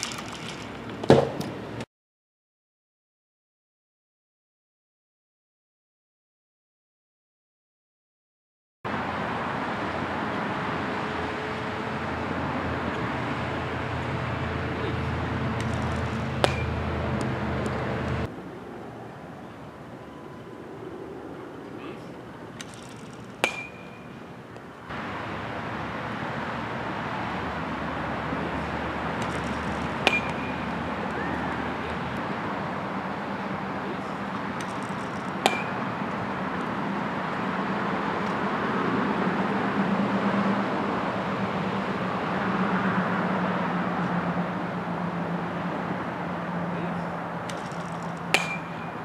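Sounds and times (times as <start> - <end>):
metal bat hitting balls: 15.6 - 17.8, 22.6 - 24.1, 29.2 - 32.0, 34.5 - 36.1, 47.4 - 49.0.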